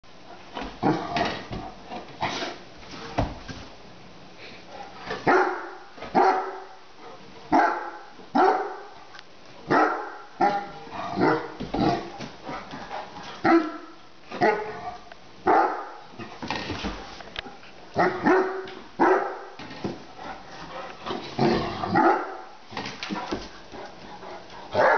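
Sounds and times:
dog barking: 5.2s - 6.8s, 7.5s - 9.0s, 9.7s - 11.5s, 13.4s - 14.7s, 15.5s - 16.0s, 18.0s - 19.6s, 21.9s - 22.5s.

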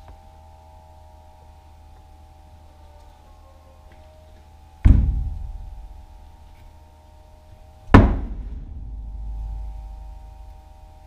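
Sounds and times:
banging on wooden door: 4.9s - 5.4s, 8.0s - 8.6s.

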